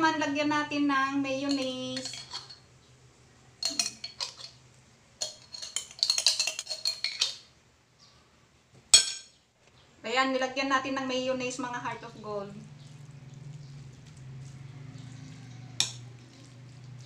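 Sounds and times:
metal spoon scraping jar: 1.5s - 2.6s, 3.6s - 4.6s, 5.2s - 7.5s.

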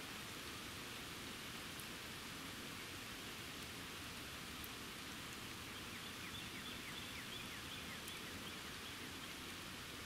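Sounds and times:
hiss of falling rain: 0.0s - 10.0s
bird chirping: 5.8s - 9.5s.

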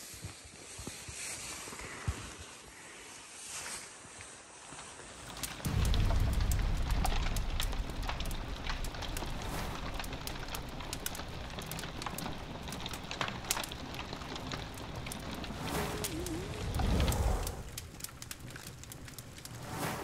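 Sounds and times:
low rumble of flames: 5.1s - 20.0s
campfire crackling and popping: 5.2s - 20.0s.

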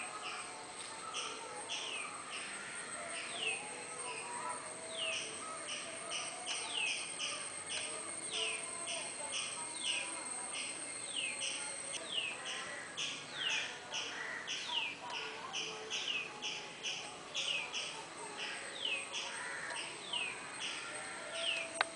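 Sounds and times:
steady high-pitched tone: 0.0s - 12.5s.

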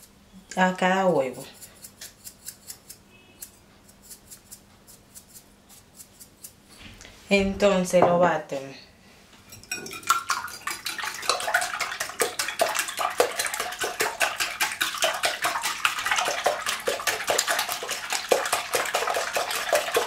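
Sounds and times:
whisk clinking against glass: 9.5s - 20.0s
wire whisk beating eggs: 9.5s - 20.0s
eggs sloshing: 9.6s - 20.0s.

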